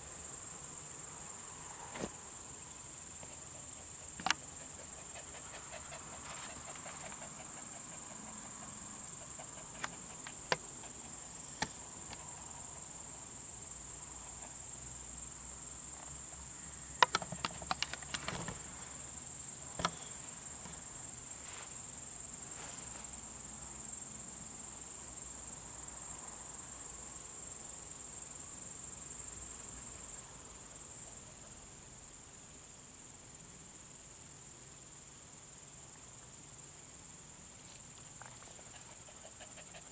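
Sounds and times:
insects chirring: 0:00.0 - 0:39.9
sharp clicks: 0:17.0 - 0:18.5.

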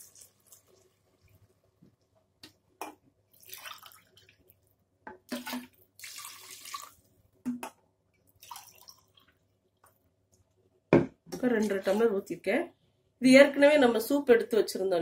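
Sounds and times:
water pouring into a pot: 0:00.0 - 0:01.7, 0:03.3 - 0:04.6, 0:05.3 - 0:07.1, 0:08.4 - 0:09.4.

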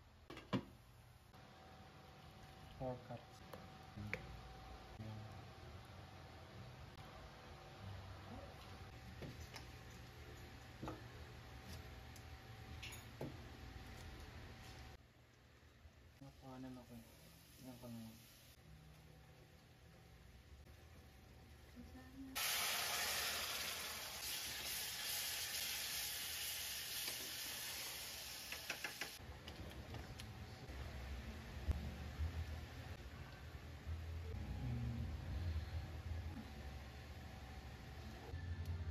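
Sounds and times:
roux sizzling in a pan: 0:22.4 - 0:29.2
frying pan ticking and popping: 0:28.5 - 0:29.2.

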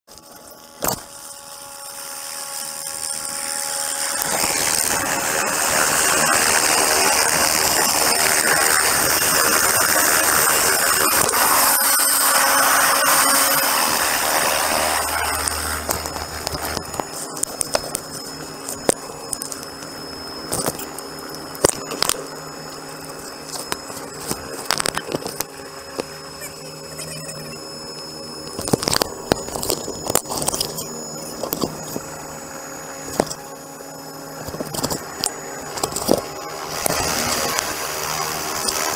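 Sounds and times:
helicopter rotor noise: 0:00.1 - 0:38.9
high whine: 0:00.1 - 0:38.9
sharp clicks and knocks: 0:34.4 - 0:37.7.

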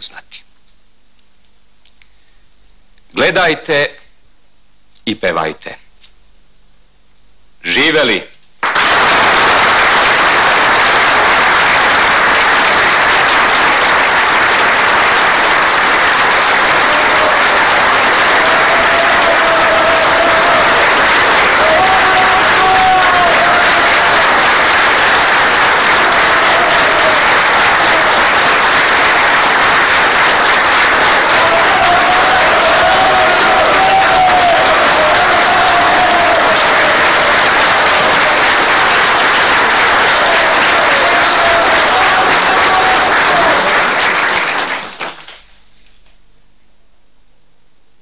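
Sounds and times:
crowd applauding: 0:08.6 - 0:45.6.

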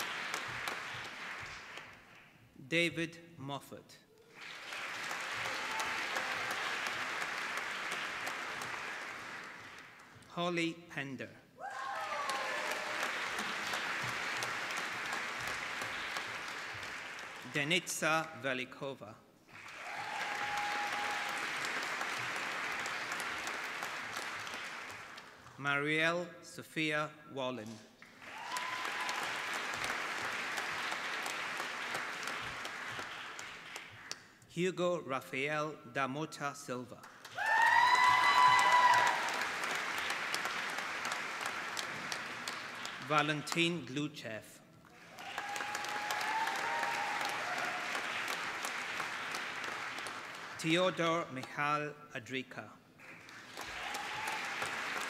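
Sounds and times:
audience applauding: 0:00.0 - 0:02.4, 0:04.2 - 0:10.3, 0:11.7 - 0:17.7, 0:19.5 - 0:25.6, 0:28.0 - 0:34.3, 0:37.1 - 0:43.6, 0:44.8 - 0:51.0, 0:53.0 - 0:55.0.

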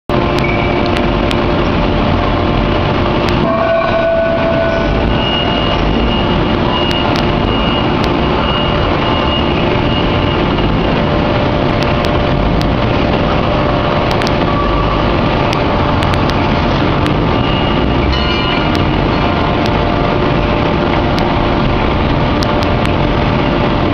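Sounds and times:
forging press machinery din: 0:02.6 - 0:11.2.

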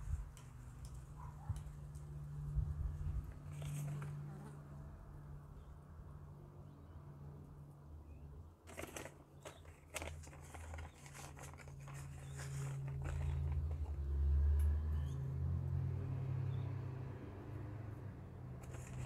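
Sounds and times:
pebbles rattling: 0:08.7 - 0:14.0, 0:18.6 - 0:19.0
plastic bag crinkling: 0:08.7 - 0:14.0, 0:18.6 - 0:19.0.

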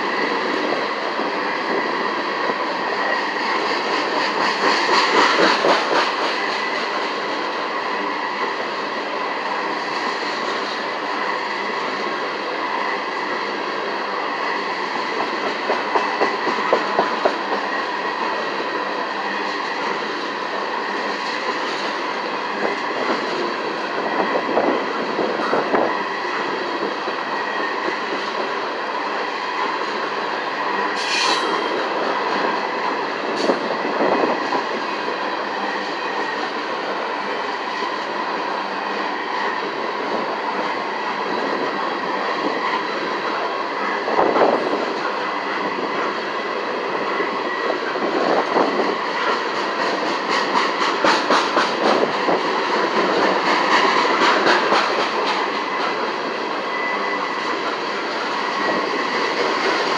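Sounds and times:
train wheels rumbling on rails: 0:00.0 - 0:59.9
high wheel squeal: 0:53.1 - 0:59.8.

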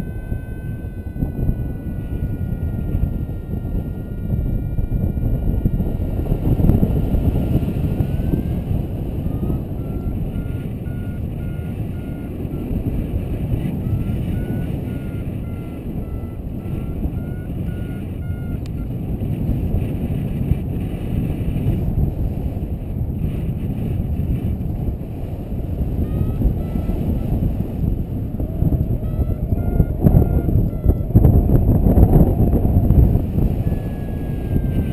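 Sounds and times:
variometer beeping: 0:00.0 - 0:19.0, 0:26.0 - 0:27.3, 0:28.3 - 0:34.9
wind rushing over microphone: 0:00.0 - 0:34.9.

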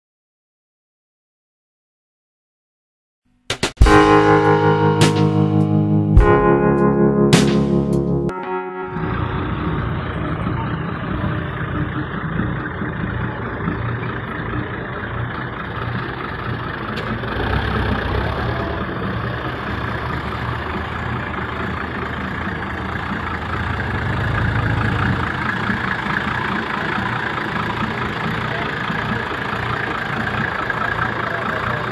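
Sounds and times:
truck engine idling: 0:08.9 - 0:31.9.

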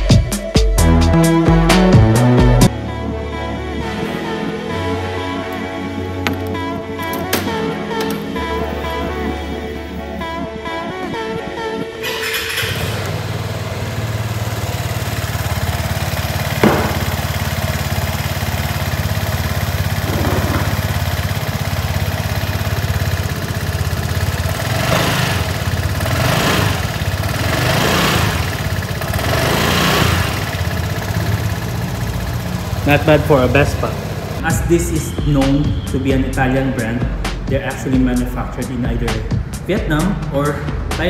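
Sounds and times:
scooter engine idling: 0:11.7 - 0:39.6
scooter throttle blips: 0:12.0 - 0:36.2.

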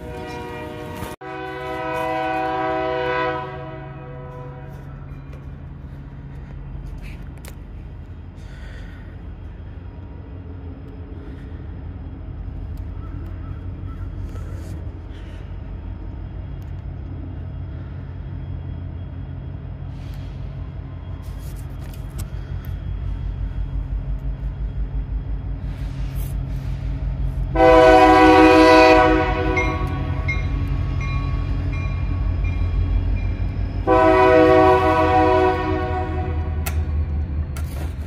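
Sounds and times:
locomotive horn blasts: 0:00.0 - 0:05.1, 0:27.5 - 0:30.8, 0:33.8 - 0:36.8
train rumbling: 0:00.0 - 0:38.0.

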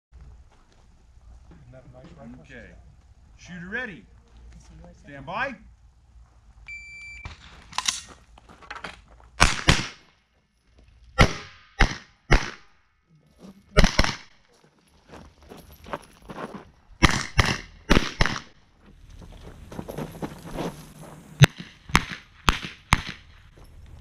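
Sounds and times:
shot timer beep: 0:06.7 - 0:07.3
rifle shots: 0:09.4 - 0:10.0, 0:11.2 - 0:12.7, 0:13.8 - 0:14.4, 0:17.0 - 0:18.6, 0:21.4 - 0:23.5.

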